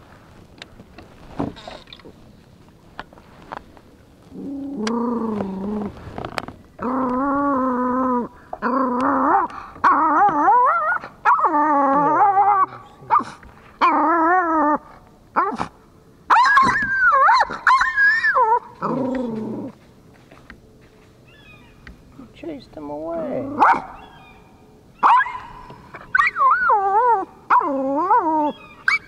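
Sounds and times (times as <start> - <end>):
dog whining and yowling: 6.8 - 15.7, 16.3 - 19.8, 25.0 - 29.0.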